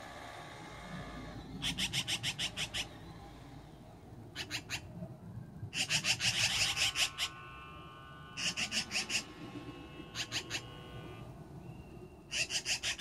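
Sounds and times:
magpies rattling chatter calls: 0.8s - 3.6s, 4.3s - 5.0s, 5.7s - 7.5s, 8.4s - 11.2s, 12.2s - 13.0s.

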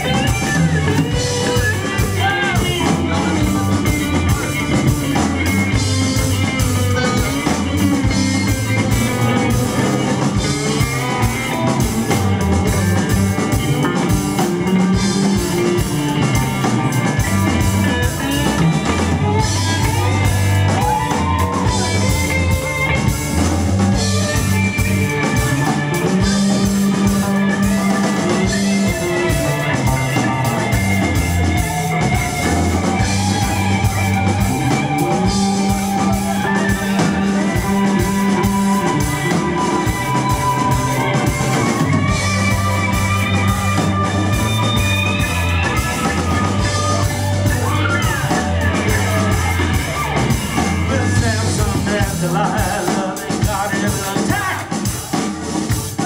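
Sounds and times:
busy drum kit: 0.0s - 56.0s
electric guitar lines: 0.0s - 56.0s
keyboard: 0.0s - 56.0s
walking electric bass: 0.0s - 56.0s.

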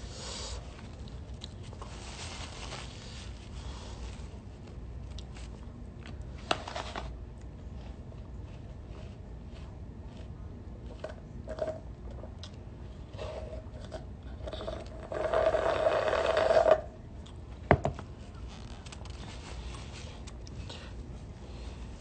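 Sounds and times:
slurping drink through straw: 13.1s - 16.8s.

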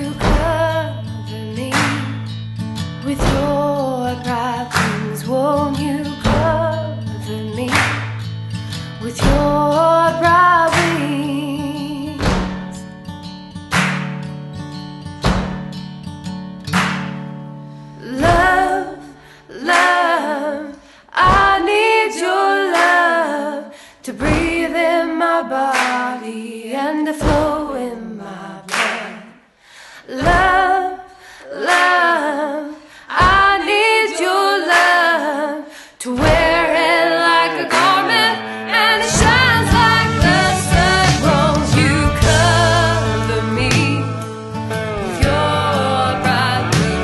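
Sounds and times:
musical accompaniment: 13.5s - 14.4s, 36.8s - 47.0s
high voice singing: 18.0s - 29.4s, 30.1s - 44.4s, 45.0s - 47.0s.

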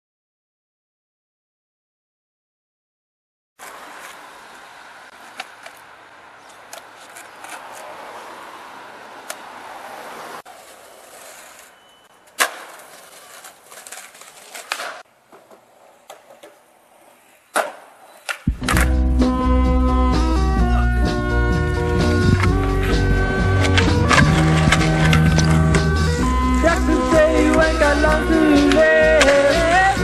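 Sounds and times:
skateboard clacking: 3.6s - 4.4s, 5.1s - 8.1s, 9.2s - 9.5s, 10.4s - 19.0s, 21.0s - 30.0s
skateboard scraping on ledges: 3.6s - 5.9s, 6.5s - 8.6s, 9.3s - 19.4s, 20.6s - 30.0s
skateboard wheels rolling on pavement: 3.6s - 30.0s.

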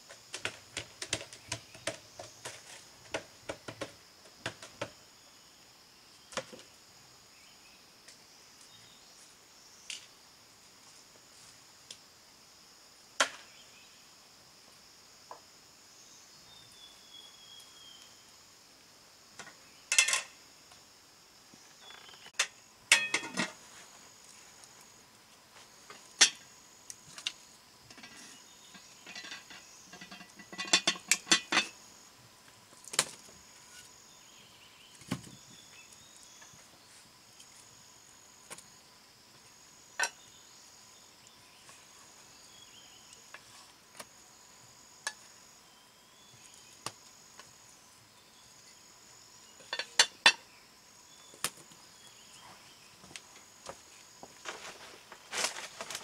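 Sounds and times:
insects calling: 0.0s - 56.0s
utensils clinking on cookware: 19.9s - 20.3s, 22.4s - 23.6s, 27.9s - 31.8s, 49.6s - 50.4s.

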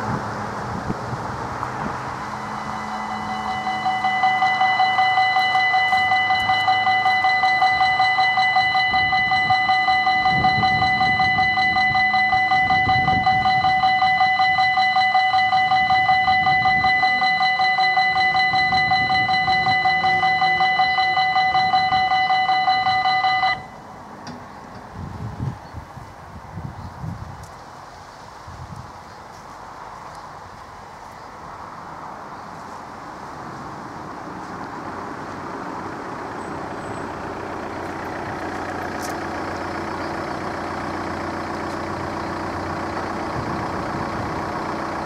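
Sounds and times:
level crossing warning bell: 2.1s - 24.1s, 35.9s - 45.0s.

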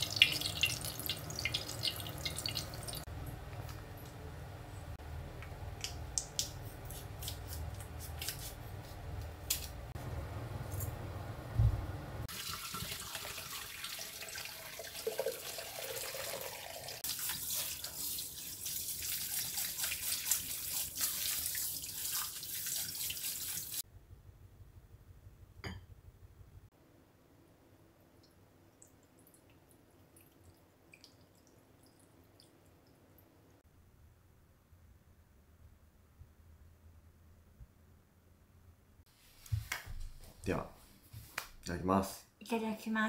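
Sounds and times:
tap water running into colander: 0.0s - 3.0s, 12.3s - 23.8s
low steady hum: 0.0s - 12.3s.

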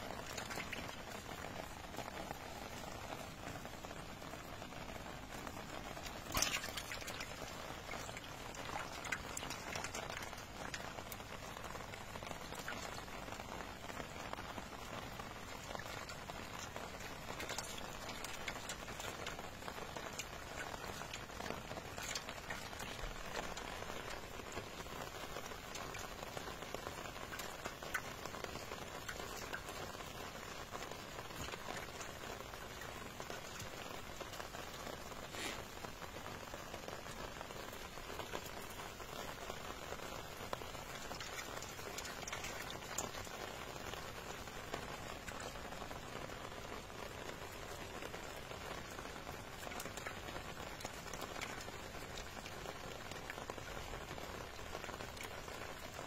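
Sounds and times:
fish splashing in water: 0.0s - 2.5s, 5.3s - 13.1s, 15.2s - 30.1s, 40.8s - 43.4s
steady hiss: 0.0s - 56.0s.

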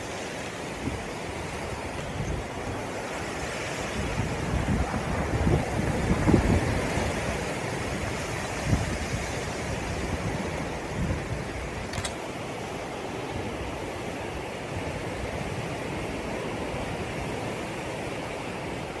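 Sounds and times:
wind blowing through trees: 0.0s - 19.0s
wind gusts buffeting microphone: 0.0s - 19.0s
brief click: 11.9s - 12.2s.

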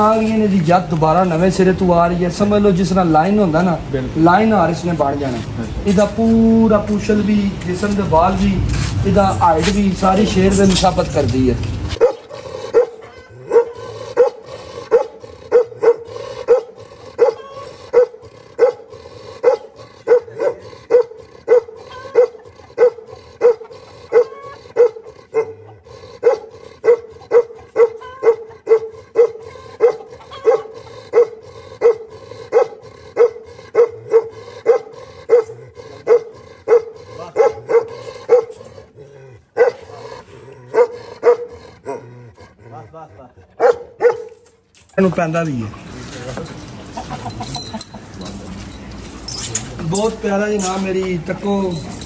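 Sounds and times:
dog barking rhythmically: 12.0s - 25.6s, 26.2s - 38.6s, 39.6s - 40.0s, 40.7s - 42.1s, 43.6s - 44.3s.

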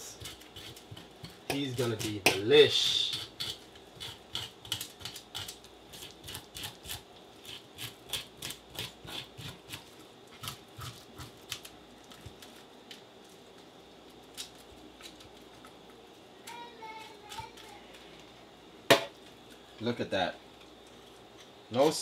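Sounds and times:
knife scraping fish scales: 0.2s - 2.2s, 2.8s - 11.6s.

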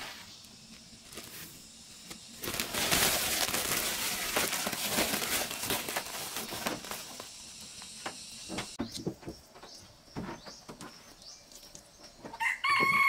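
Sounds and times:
plastic sack crinkling: 2.3s - 7.4s.

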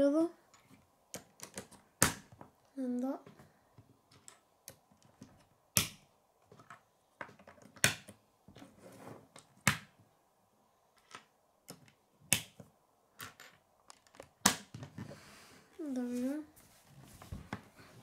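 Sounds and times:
plastic pieces tapping on wooden table: 11.0s - 15.0s
plastic pieces clicking together: 13.2s - 14.7s.

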